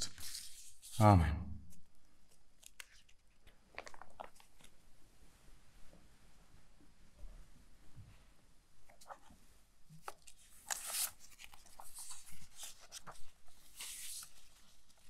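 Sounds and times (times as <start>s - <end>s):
book pages rustling: 0.0s - 1.0s, 2.3s - 4.8s, 8.8s - 15.0s
page swishes: 0.0s - 1.0s, 10.0s - 15.0s.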